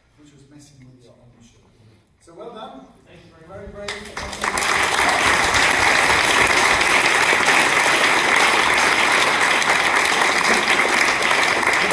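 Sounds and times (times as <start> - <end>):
audience applauding: 3.9 - 11.9.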